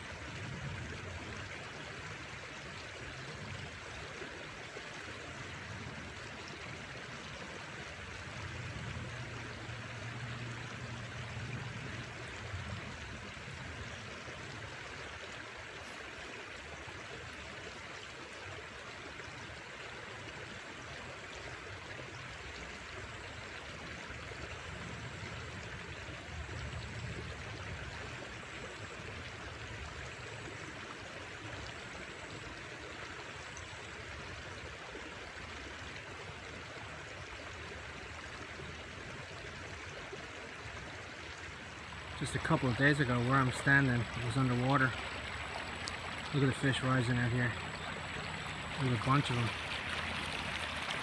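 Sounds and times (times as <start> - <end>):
river rushing over rocks: 41.4 - 51.0.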